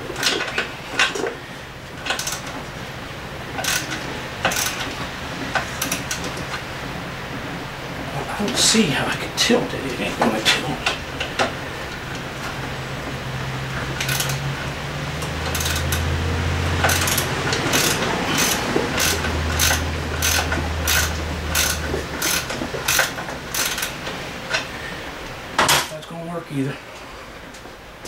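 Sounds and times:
ratchet wrench clicking: 2.0s - 2.5s, 3.6s - 4.9s, 5.8s - 6.3s, 14.0s - 14.4s, 15.2s - 16.0s, 16.8s - 23.9s.

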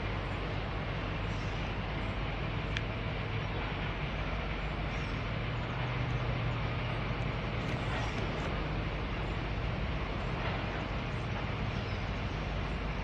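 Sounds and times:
locomotive engine drone: 0.0s - 13.0s
train rumble: 0.0s - 13.0s.

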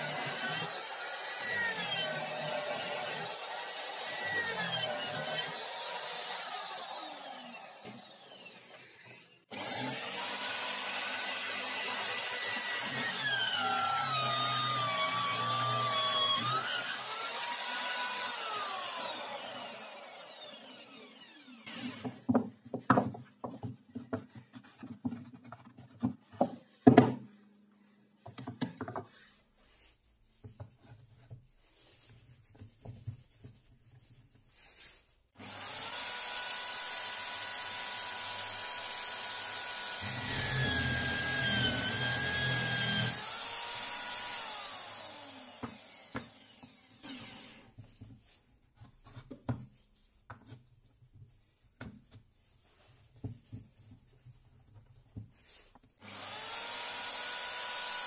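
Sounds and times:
drill bit cutting wood: 0.0s - 22.1s, 35.4s - 47.7s, 56.0s - 58.0s
electric drill whining: 0.0s - 22.2s, 35.4s - 47.7s, 56.0s - 58.0s.

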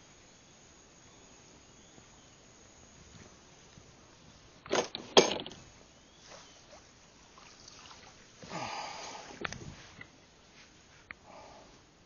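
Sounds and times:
water sloshing: 6.2s - 8.5s.

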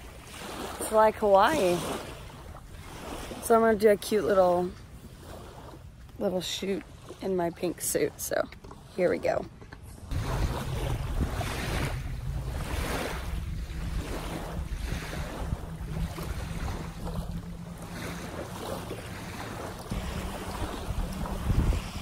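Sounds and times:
waves lapping at shore: 0.0s - 22.0s
wind buffeting microphone: 9.3s - 22.0s.

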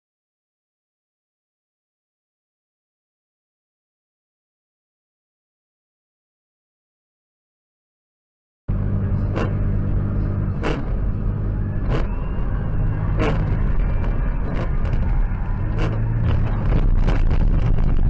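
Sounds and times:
engine and road noise drone: 8.7s - 18.0s.

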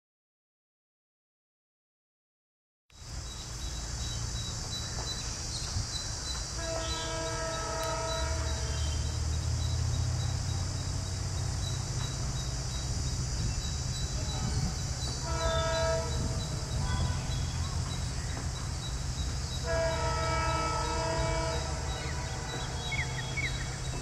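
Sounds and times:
diesel locomotive engine rumbling: 3.0s - 24.0s
locomotive horn: 6.6s - 11.5s, 14.2s - 18.3s, 19.5s - 24.0s.

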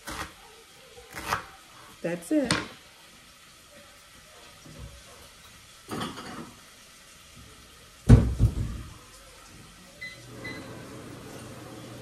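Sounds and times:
loud knock of cookware: 8.1s - 8.8s.

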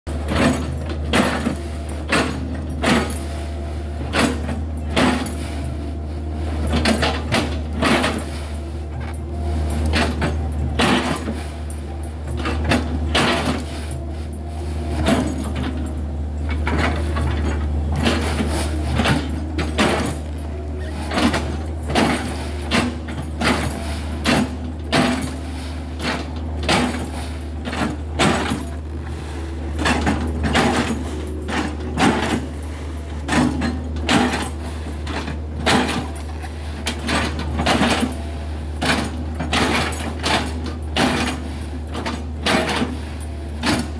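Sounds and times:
excavator diesel engine running: 0.1s - 43.9s.

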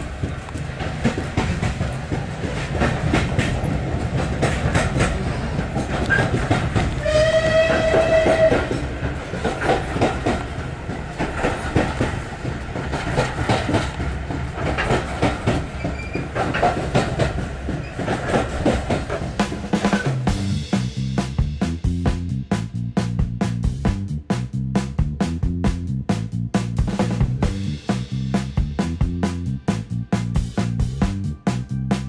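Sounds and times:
wheels clicking over rail joints: 0.0s - 20.4s
railway carriage rumbling: 0.0s - 32.0s
steam whistle: 7.0s - 8.8s.

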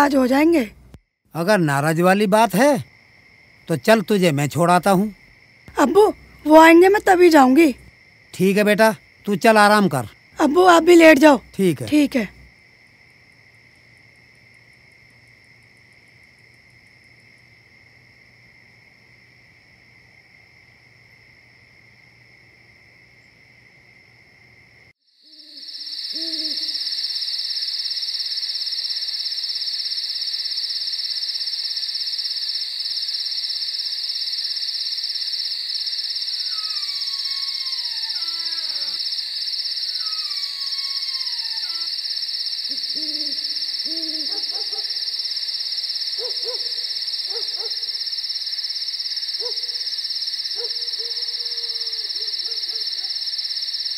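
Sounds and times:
insect chorus: 0.0s - 53.9s
owl hooting: 25.3s - 27.2s, 36.4s - 39.1s, 39.9s - 42.0s, 42.7s - 45.2s, 46.2s - 48.0s, 50.6s - 53.2s
falling whistle-like calls: 25.3s - 29.2s, 36.2s - 48.0s.

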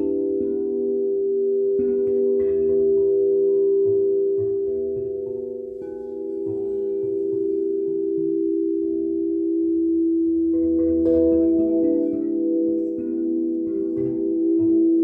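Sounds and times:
singing bowls ringing: 0.0s - 15.0s
soft mallet strikes: 1.8s - 8.9s, 10.5s - 15.0s.

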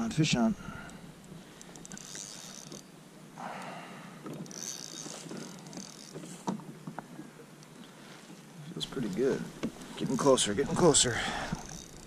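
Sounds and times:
fishing reel whirring and clicking: 0.6s - 7.0s, 8.8s - 12.0s.

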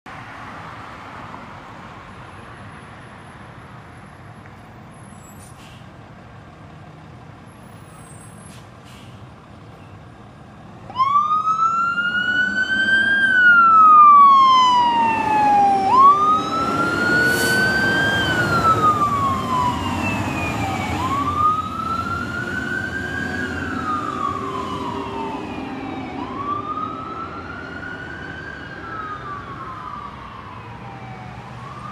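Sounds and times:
truck engine rumbling: 4.8s - 30.0s
fire engine siren wailing: 10.9s - 31.9s.

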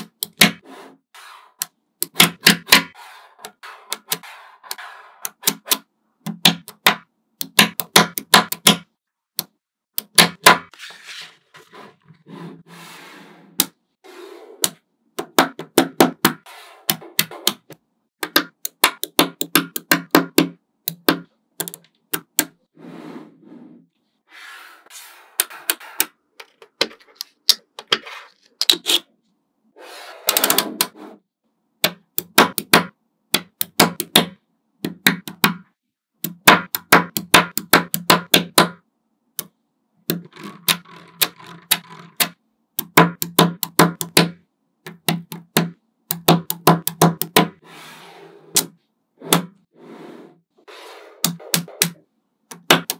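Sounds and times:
magnetic balls clicking together: 40.1s - 44.2s.

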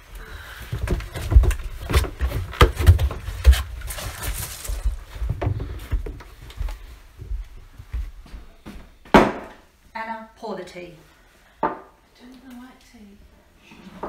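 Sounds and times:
footsteps: 0.1s - 9.7s
clothing rustle: 0.5s - 7.2s
knocks and thumps: 0.7s - 3.8s.

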